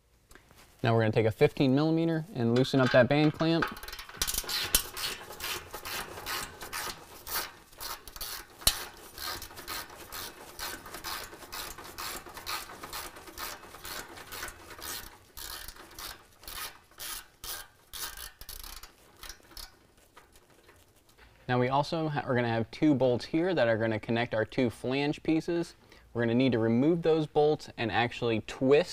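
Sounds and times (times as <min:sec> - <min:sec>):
ratchet rasping strokes: 0:03.3 - 0:21.1.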